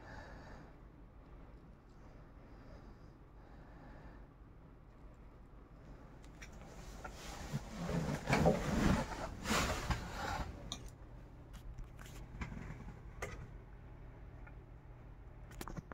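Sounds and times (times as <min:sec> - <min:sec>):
rustling handling noise: 0:06.3 - 0:13.1.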